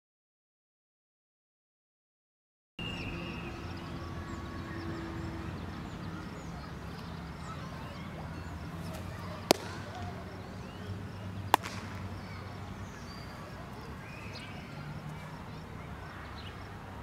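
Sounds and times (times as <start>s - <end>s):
faint birdsong: 2.8s - 17.0s
baseball smacking into leather mitt: 8.9s - 10.0s, 11.5s - 12.0s
ball landing in glove: 9.5s - 10.0s, 11.5s - 12.0s.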